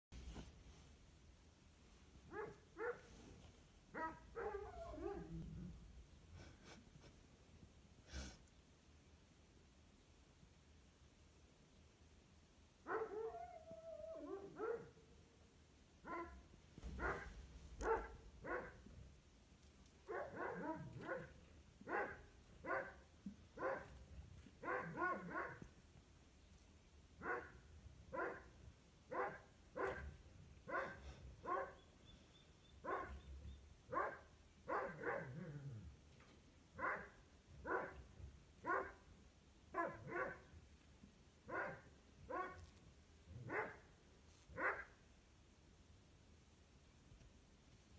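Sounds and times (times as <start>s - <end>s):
dog barking: 2.3s - 3.1s, 3.9s - 5.4s, 12.9s - 13.4s, 14.2s - 15.0s, 16.0s - 16.4s, 17.0s - 18.8s, 20.1s - 23.0s, 23.6s - 24.0s, 24.6s - 25.6s, 27.2s - 30.1s, 30.7s - 31.9s, 32.8s - 33.3s, 33.9s - 35.6s, 36.8s - 38.0s, 38.6s - 39.0s, 39.8s - 40.5s, 41.5s - 42.7s, 43.4s - 43.9s, 44.6s - 45.0s.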